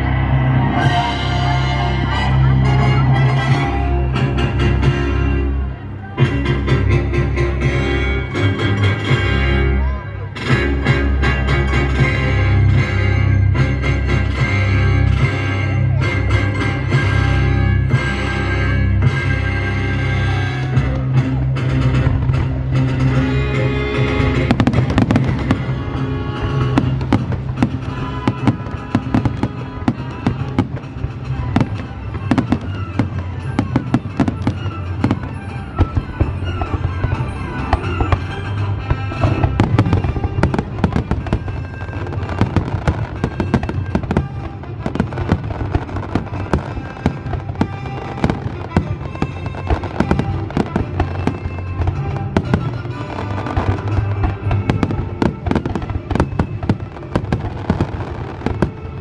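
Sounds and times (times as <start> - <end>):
music playing: 0.0 - 59.0
fireworks bursting: 23.9 - 59.0.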